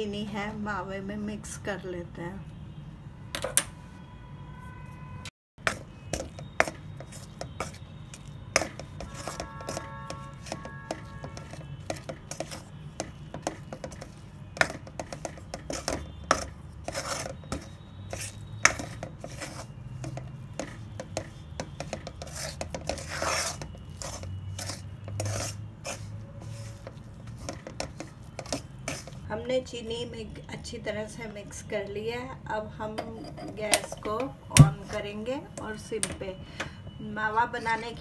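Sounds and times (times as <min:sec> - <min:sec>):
metal spoon scraping a metal pan: 0:05.7 - 0:29.2, 0:33.0 - 0:35.2.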